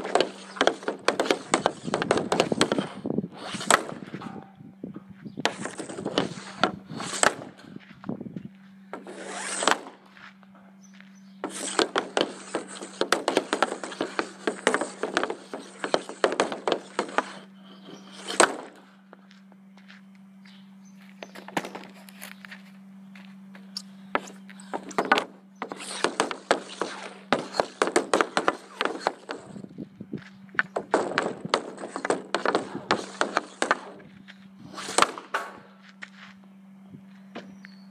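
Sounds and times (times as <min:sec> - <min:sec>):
hockey stick tapping puck: 0:00.0 - 0:02.8, 0:11.5 - 0:17.4.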